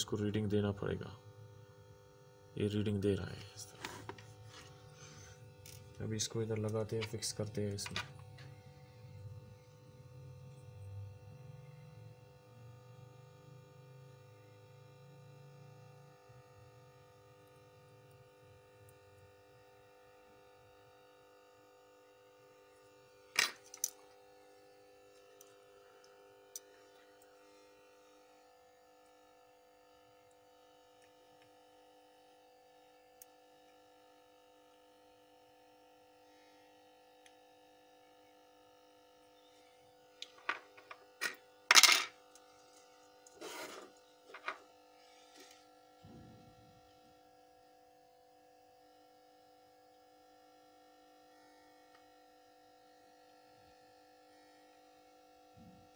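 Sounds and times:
faint steady hum: 0.0s - 55.9s
tools clattering: 40.2s - 42.1s.

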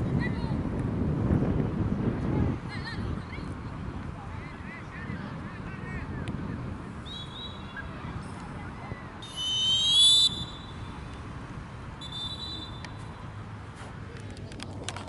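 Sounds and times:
faint short whistle blasts: 7.0s - 7.7s, 9.2s - 10.9s, 12.0s - 13.0s
referee's whistle blast: 9.2s - 10.9s, 12.0s - 12.9s.

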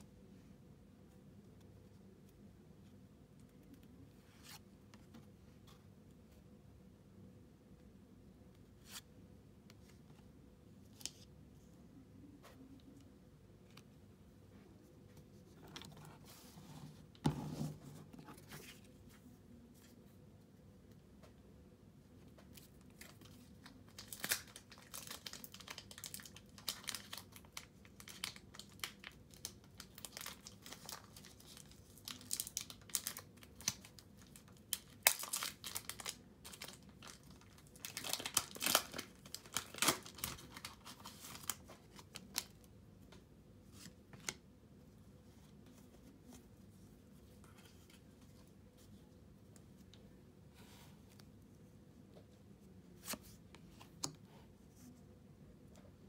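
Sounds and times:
crinkling and rustling with clicks: 22.2s - 44.5s.

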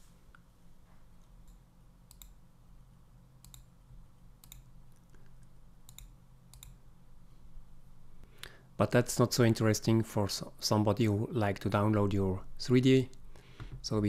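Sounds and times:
faint low hum: 0.0s - 14.0s
computer mouse clicking: 1.4s - 2.4s, 3.4s - 3.7s, 4.4s - 6.8s.

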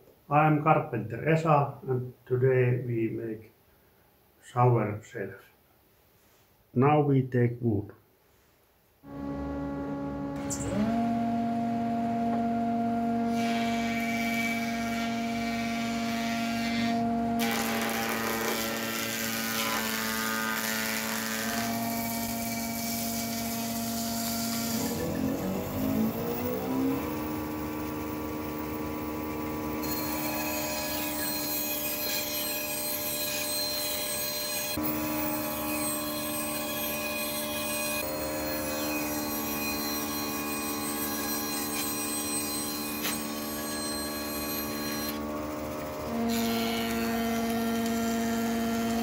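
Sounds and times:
jointer planing a board: 9.0s - 49.0s
motor hum: 9.1s - 19.4s, 23.1s - 32.3s, 38.0s - 49.0s
bandsaw ripping wood: 13.2s - 27.0s, 29.8s - 49.0s.

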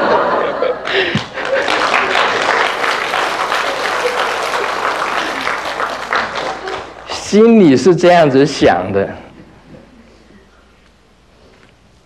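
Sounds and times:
audience applauding: 0.8s - 7.2s.

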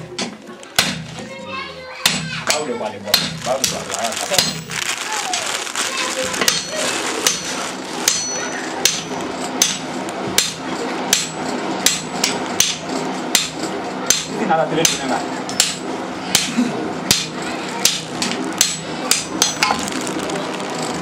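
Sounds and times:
hammer striking iron on anvil: 8.0s - 16.5s, 17.1s - 19.7s.

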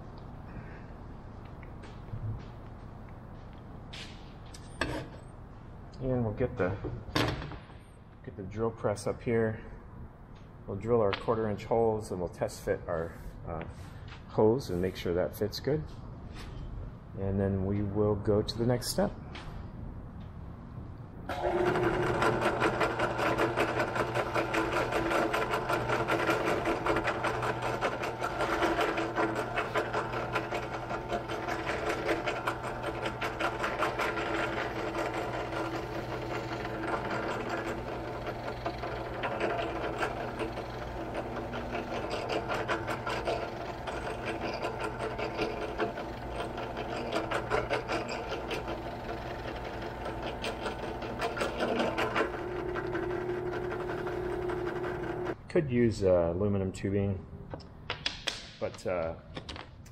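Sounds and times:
drill press drilling wood: 21.3s - 55.4s.

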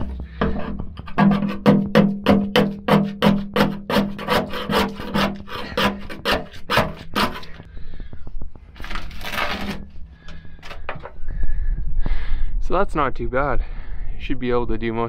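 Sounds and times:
chisel scraping coating off steel: 2.9s - 7.6s.

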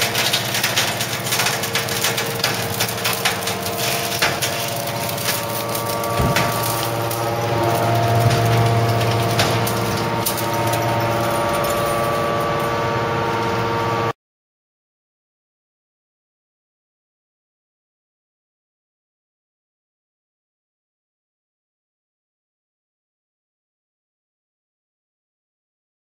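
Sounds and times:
spring wire crackling and clicking: 0.0s - 12.5s
hydraulic pump humming: 0.0s - 14.1s.

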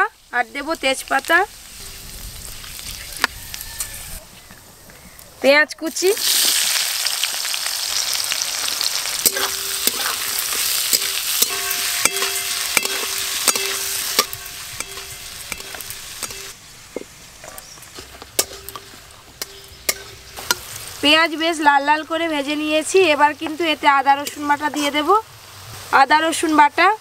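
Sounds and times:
onion sizzling in hot oil: 0.0s - 4.2s, 5.5s - 27.0s
metal spatula scraping a pan: 8.8s - 21.0s.

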